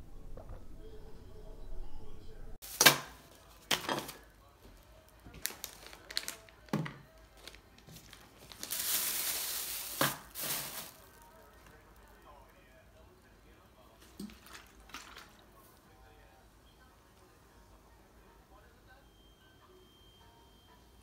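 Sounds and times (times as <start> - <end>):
plastic snack packet crinkling: 5.1 - 12.2, 14.2 - 15.4.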